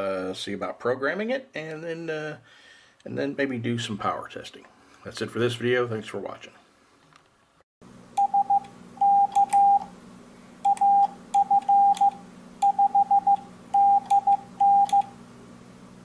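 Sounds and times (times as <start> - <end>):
morse code sidetone beeps: 8.2 - 9.9, 10.6 - 15.1.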